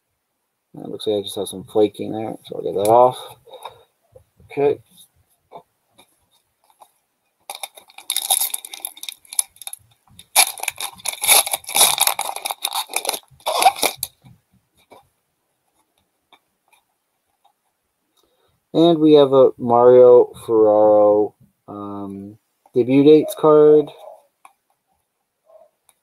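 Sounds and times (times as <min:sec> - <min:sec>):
foil pack crinkling: 0:07.5 - 0:14.2.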